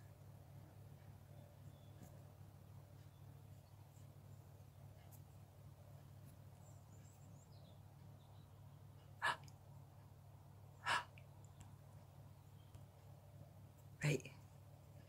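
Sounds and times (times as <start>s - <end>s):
faint low hum: 0.0s - 15.0s
short breaths: 9.2s - 9.4s, 10.8s - 11.1s.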